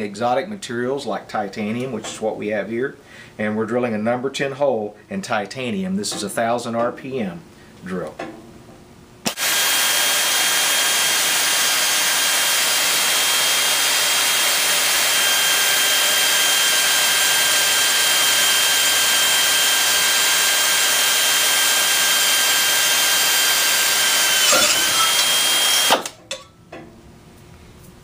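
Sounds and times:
pneumatic drill click: 0:09.2 - 0:09.4, 0:24.3 - 0:26.2
pneumatic drill hiss and whine: 0:09.3 - 0:26.2.

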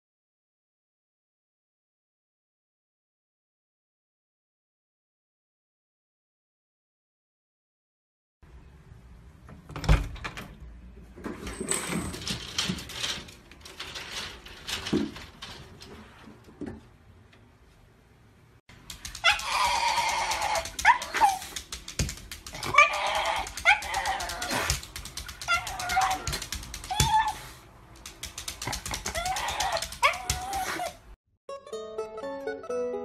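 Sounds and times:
rustling: 0:11.2 - 0:16.6
dog whining and yelping: 0:19.0 - 0:21.6, 0:22.5 - 0:27.6, 0:28.7 - 0:31.2.

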